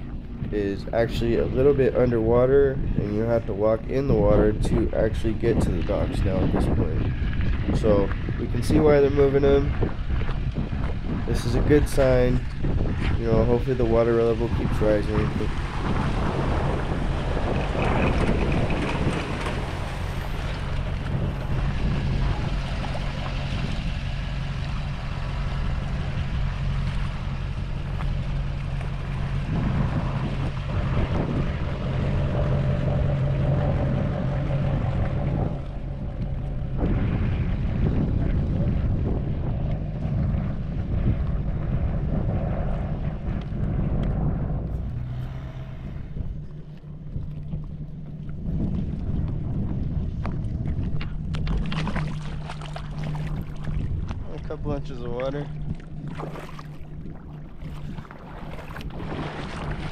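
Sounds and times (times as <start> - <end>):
engine humming: 0.0 - 59.9
wind on microphone: 0.0 - 59.9
water splashing around feet: 50.1 - 59.9.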